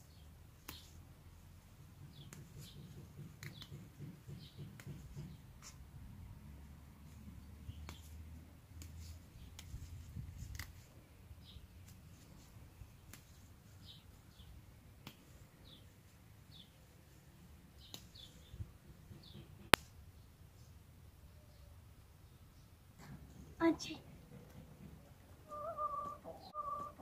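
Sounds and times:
small birds chirping: 0.0 - 5.9, 7.0 - 27.0
mint stems snapping: 0.6 - 0.9, 7.7 - 8.1, 8.7 - 10.9, 13.0 - 14.4, 15.0 - 15.3, 17.8 - 18.3.

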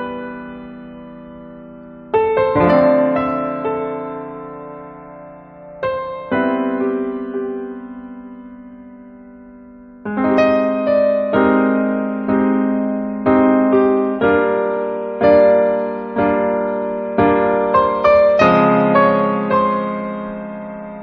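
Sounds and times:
slow gentle piano music: 0.0 - 21.0.

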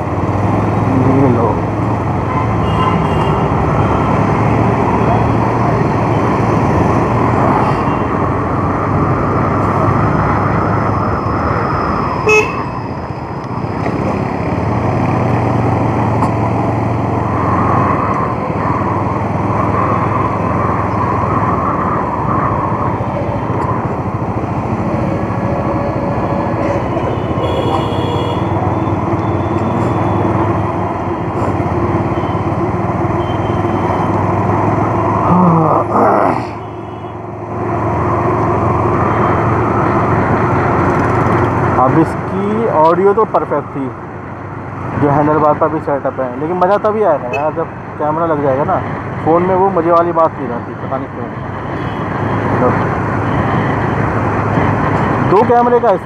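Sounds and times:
wind and road noise: 0.0 - 56.0
motorcycle horn toots: 12.2 - 12.7, 27.4 - 28.6.

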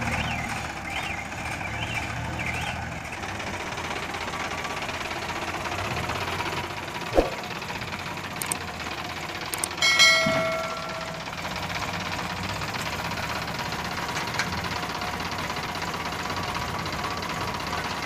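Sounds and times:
diesel engines running: 0.0 - 18.0
click: 8.4 - 8.6, 9.5 - 9.8
loud ringing ding: 9.8 - 11.8.

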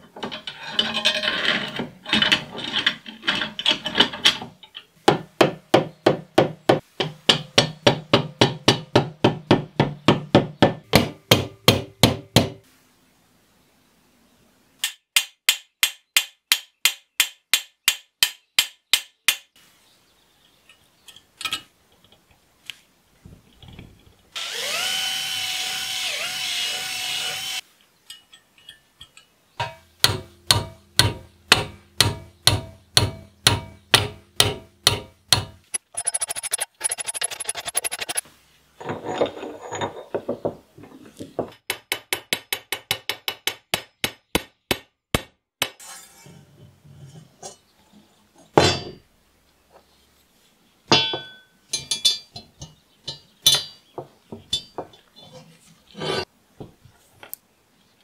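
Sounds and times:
small power tool spinning: 24.4 - 27.6, 35.7 - 38.2.

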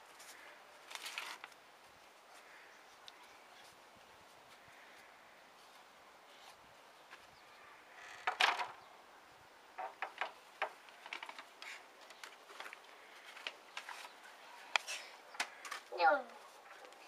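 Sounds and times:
wooden gate rattling: 8.0 - 8.8, 9.8 - 12.7
wooden gate knocking shut: 8.1 - 8.8, 9.8 - 10.8.

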